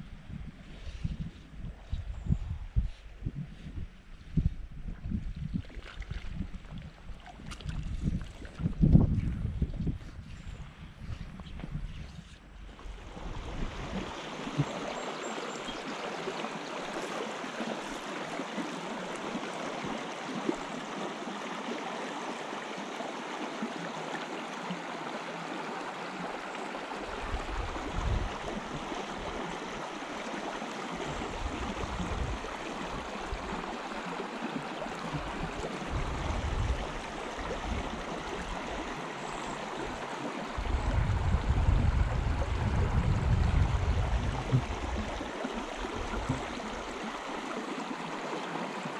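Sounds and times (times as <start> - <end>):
wind buffeting microphone: 0.0 - 14.7, 27.1 - 29.4, 31.1 - 33.7, 35.1 - 38.7, 40.5 - 46.9
river babbling: 12.4 - 42.8, 43.5 - 48.9.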